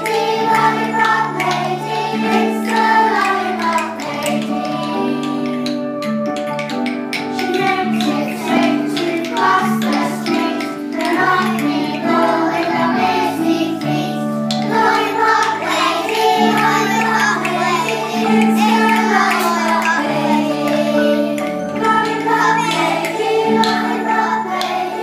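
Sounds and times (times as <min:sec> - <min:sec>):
children singing: 0:00.0 - 0:06.0, 0:07.1 - 0:25.0.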